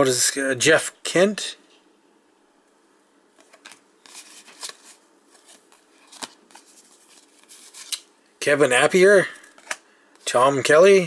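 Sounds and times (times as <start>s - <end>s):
cards flipping and sliding: 3.4s - 8.1s, 9.4s - 10.3s.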